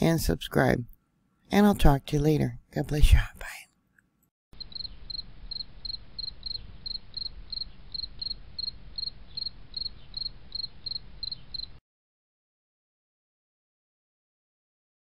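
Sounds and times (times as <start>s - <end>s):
high insect-like chirps: 4.6s - 11.8s.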